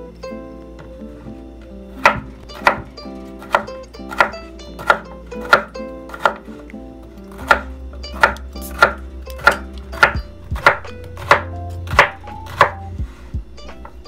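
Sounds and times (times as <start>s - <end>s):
background music: 0.0s - 14.0s
knife chopping on wooden board: 2.0s - 6.5s, 7.3s - 13.2s.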